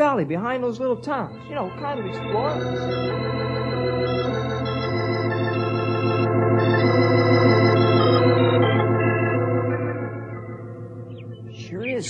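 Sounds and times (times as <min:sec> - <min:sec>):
organ chords with tremolo: 0:00.0 - 0:12.0.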